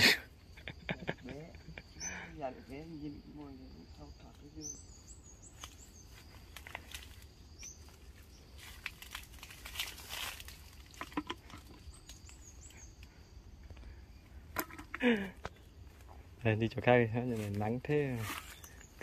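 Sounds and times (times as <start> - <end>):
small bird chirps: 1.7 - 14.2, 18.1 - 19.0.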